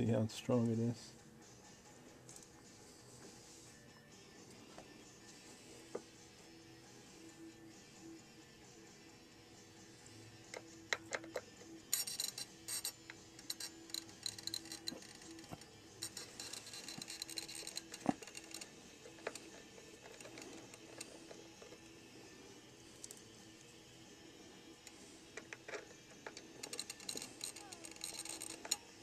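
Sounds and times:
screwdriver clicking and scraping: 10.5 - 21.9, 24.8 - 28.9.

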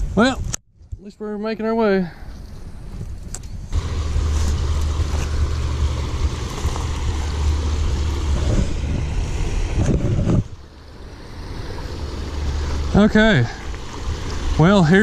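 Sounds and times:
wind buffeting microphone: 2.4 - 15.0.

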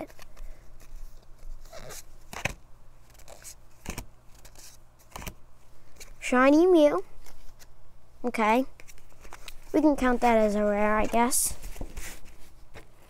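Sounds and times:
cards scraping: 0.0 - 6.2, 8.8 - 10.2.

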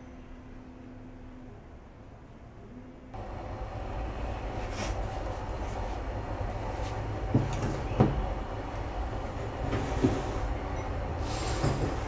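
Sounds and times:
steady low rumble: 3.1 - 11.3.

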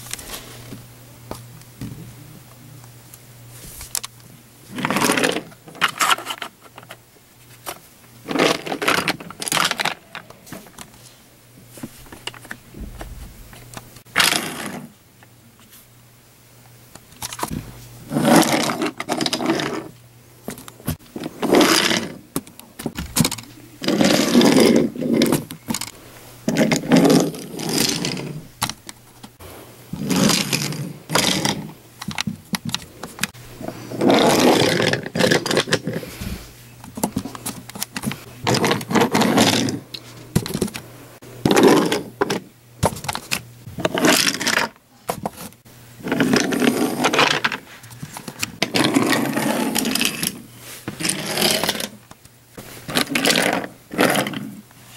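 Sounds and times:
faint low hum: 0.0 - 54.9
toy railcar rolling on wooden track: 18.1 - 19.9, 21.2 - 22.2, 23.3 - 25.9, 26.5 - 28.4, 30.0 - 32.2, 33.9 - 36.0, 38.4 - 39.8, 43.8 - 44.8, 46.0 - 47.6, 48.6 - 52.0, 52.9 - 54.6.

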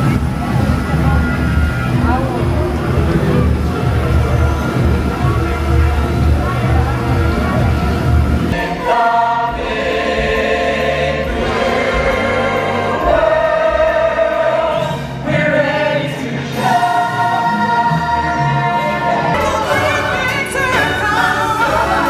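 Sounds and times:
choir singing long held notes: 8.5 - 22.0.

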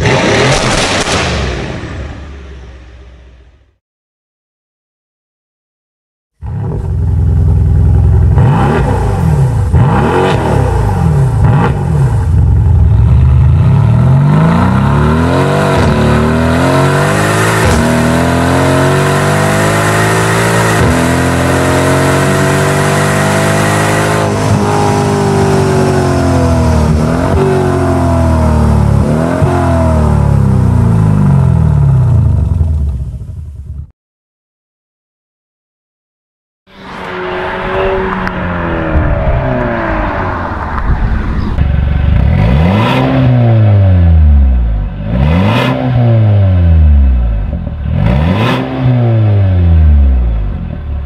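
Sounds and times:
car engine revving: 0.0 - 2.0, 6.4 - 33.3, 36.7 - 51.0
exhaust crack: 0.0 - 3.2, 36.8 - 43.6.

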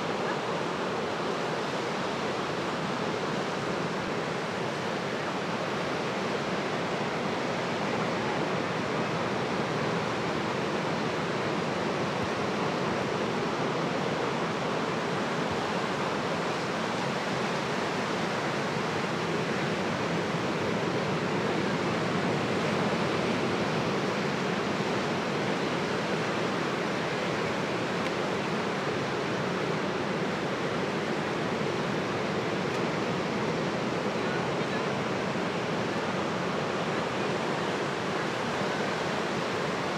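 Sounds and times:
ocean surf breaking on shore: 0.0 - 39.9.

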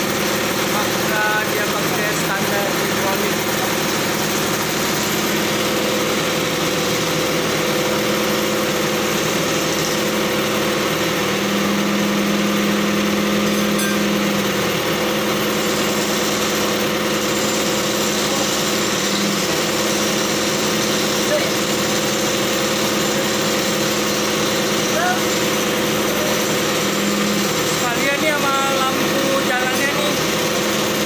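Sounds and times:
truck engine idling hum: 0.0 - 21.5.

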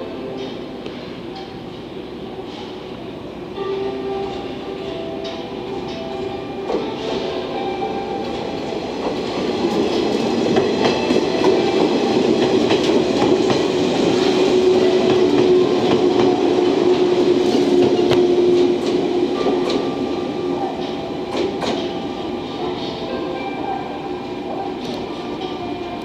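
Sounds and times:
train wheels clacking over rail joints: 9.0 - 20.0.

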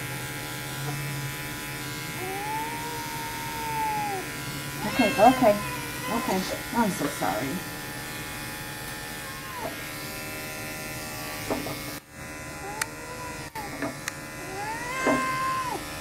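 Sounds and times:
electric clippers buzzing: 0.0 - 16.0
cat yowling: 2.1 - 6.6, 9.2 - 9.8, 12.6 - 13.8, 14.4 - 16.0.

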